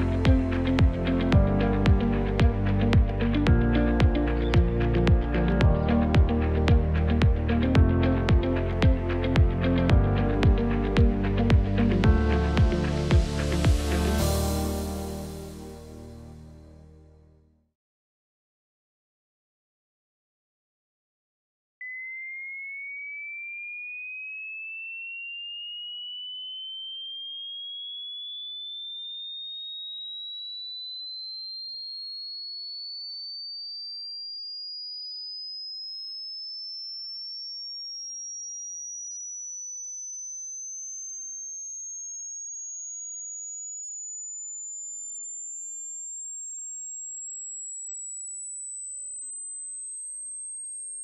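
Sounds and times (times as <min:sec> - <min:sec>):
rising electronic test tone: 0:00.0 - 0:16.5.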